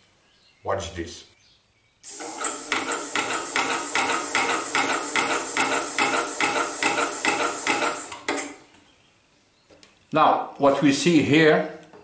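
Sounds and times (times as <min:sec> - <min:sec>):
air engine hissing and puffing: 0:02.1 - 0:08.6.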